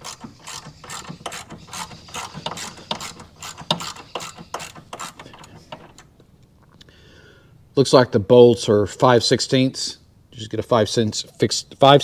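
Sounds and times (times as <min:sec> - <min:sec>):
socket ratchet clicking: 0:00.0 - 0:06.1.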